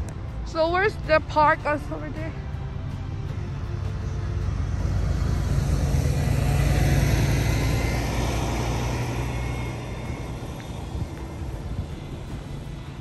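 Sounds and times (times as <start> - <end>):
road vehicle passing close by: 2.1 - 13.0.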